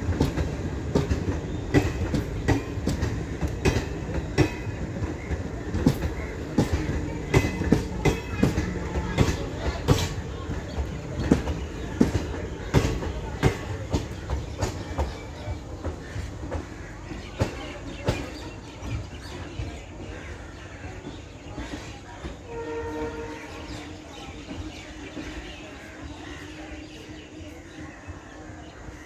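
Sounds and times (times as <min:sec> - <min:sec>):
train rumble: 0:00.0 - 0:29.0
train wheels clacking over rail joints: 0:00.0 - 0:29.0
distant train horn: 0:22.2 - 0:24.2.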